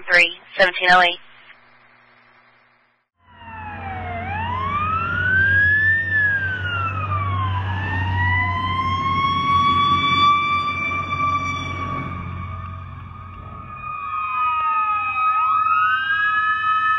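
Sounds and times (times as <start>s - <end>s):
emergency siren wailing: 3.2s - 16.9s
low engine rumble: 3.3s - 14.4s.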